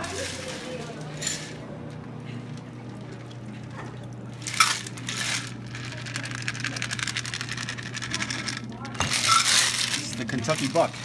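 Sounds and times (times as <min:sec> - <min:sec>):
drink pouring into cups: 0:00.0 - 0:11.0
ice rattling in cocktail shaker: 0:04.4 - 0:11.0.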